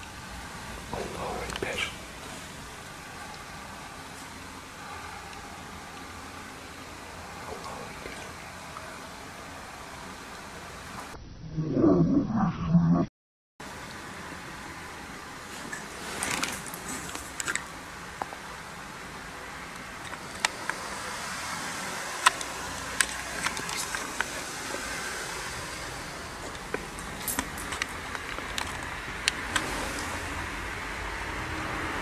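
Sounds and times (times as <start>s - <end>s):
steady hiss: 0.0s - 11.2s, 13.6s - 32.0s
rustling: 15.5s - 17.7s.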